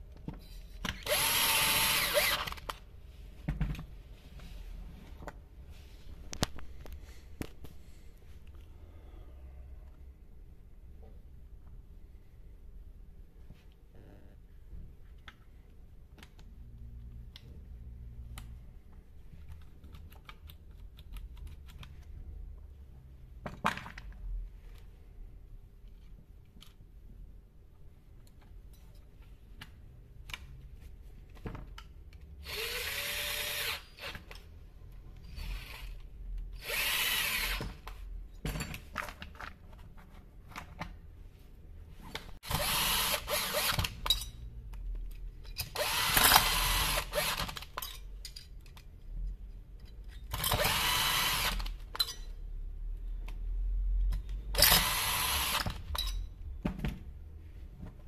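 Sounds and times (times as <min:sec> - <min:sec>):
power drill running: 0:01.0 - 0:02.6, 0:32.4 - 0:34.1, 0:36.6 - 0:37.6, 0:42.4 - 0:43.8, 0:45.8 - 0:47.4, 0:50.6 - 0:51.7, 0:54.8 - 0:55.7.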